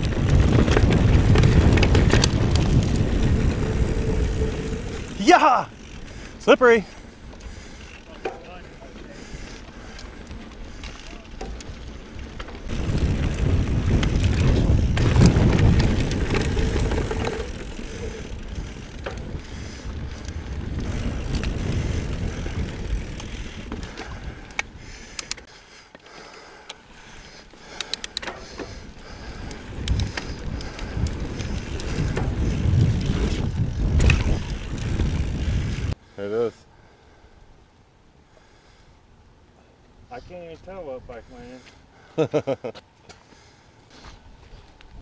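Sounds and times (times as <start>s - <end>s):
bike clicks and rattles: 0.0s - 36.0s
wind and tyres rumbling on trail: 0.0s - 45.0s.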